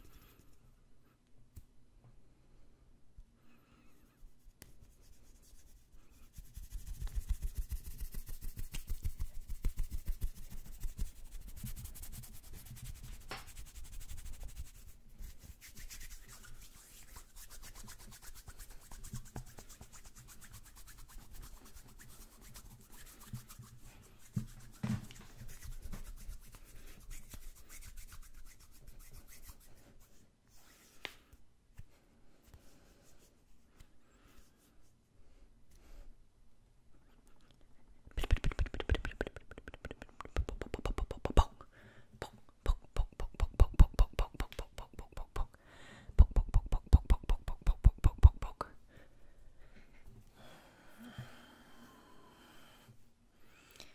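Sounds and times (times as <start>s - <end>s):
hands rubbing together: 4.3s - 31.9s, 38.1s - 41.6s, 42.2s - 45.6s.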